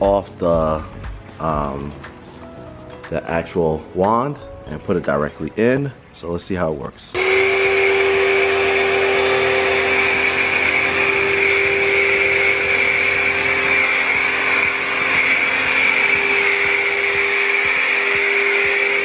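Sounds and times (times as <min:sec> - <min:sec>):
pressure washer motor hum: 0:07.2 - 0:19.0
foam spray hissing: 0:07.4 - 0:19.0.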